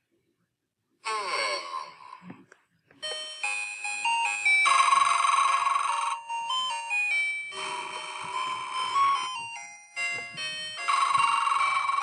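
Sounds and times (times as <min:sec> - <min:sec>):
tinkly electronic toy melody: 0:03.0 - 0:12.0.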